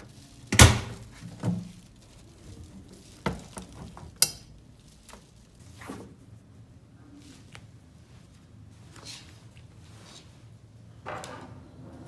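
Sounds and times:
washing machine clunk: 0:00.5 - 0:01.8.

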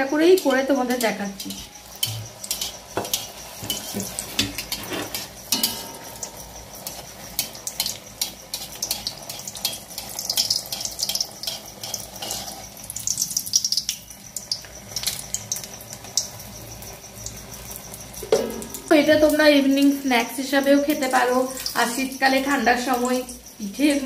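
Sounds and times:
batter sizzling in hot oil: 0:00.0 - 0:24.0
oil crackling and popping: 0:01.1 - 0:18.9.

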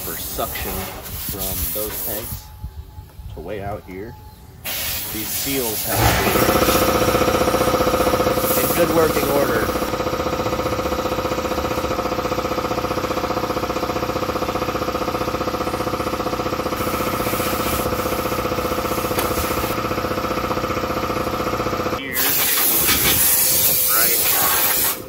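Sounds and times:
steady hiss: 0:04.6 - 0:06.0.

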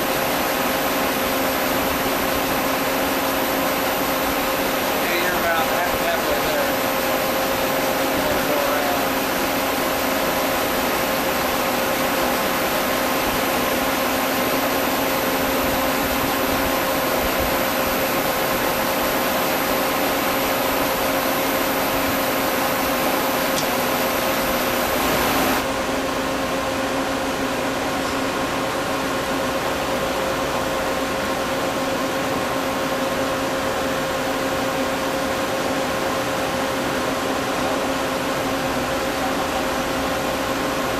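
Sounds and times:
welding machine humming: 0:00.0 - 0:25.7
high whine: 0:00.0 - 0:40.9.

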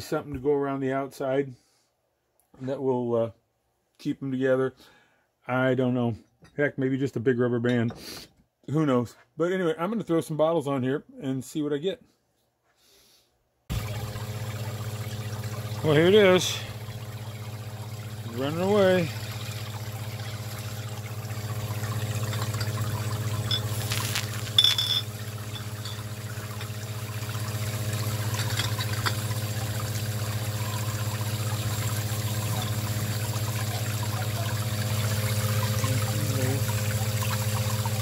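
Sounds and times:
submersible pump humming: 0:13.7 - 0:38.0
water splashing and trickling: 0:13.7 - 0:38.0
glass clink: 0:23.4 - 0:26.8.

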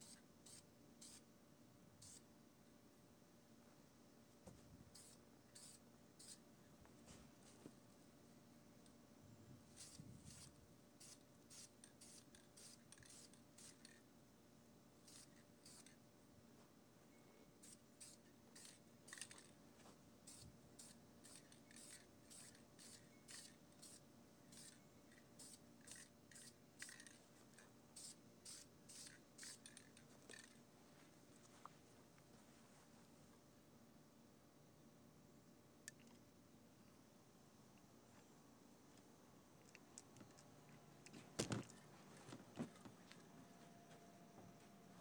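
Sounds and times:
spray can hissing bursts: 0:05.0 - 0:06.4, 0:09.8 - 0:10.4, 0:11.0 - 0:14.0, 0:15.1 - 0:15.9, 0:20.3 - 0:24.8, 0:25.4 - 0:27.2, 0:28.0 - 0:29.9.

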